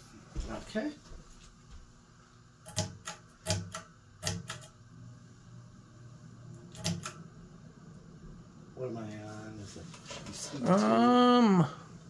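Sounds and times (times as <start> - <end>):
fan motor humming: 0.0 - 12.0
fan pull-chain switch clicks: 2.6 - 4.8, 6.7 - 7.2.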